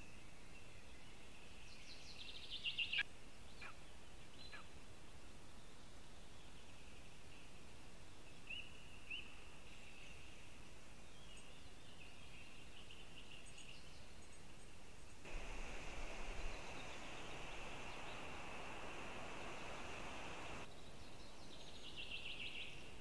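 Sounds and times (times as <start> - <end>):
songbird chirps: 0.0 - 4.8, 5.4 - 23.0
steady hiss: 15.3 - 20.7.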